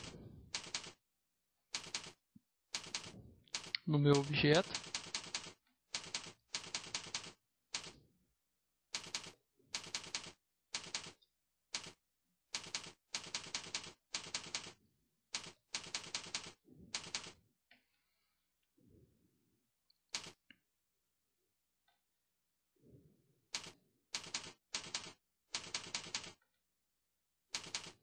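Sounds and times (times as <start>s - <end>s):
keyboard typing: 0.0s - 1.0s, 1.7s - 8.0s, 8.9s - 11.2s, 11.8s - 12.0s, 12.6s - 14.8s, 15.4s - 17.4s, 20.1s - 20.4s, 23.6s - 26.4s, 27.5s - 28.0s.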